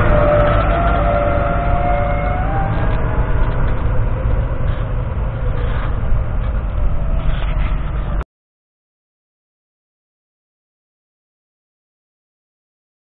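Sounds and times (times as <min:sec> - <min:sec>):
tractor diesel engine rumbling: 0:00.0 - 0:08.2.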